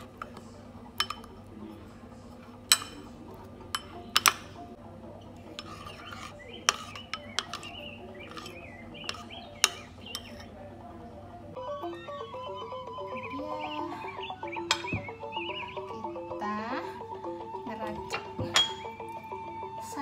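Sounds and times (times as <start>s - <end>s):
metal spoon clinking on ceramic bowl: 1.0s - 1.4s, 2.7s - 3.1s, 3.7s - 4.5s, 5.6s - 10.5s, 18.5s - 18.9s.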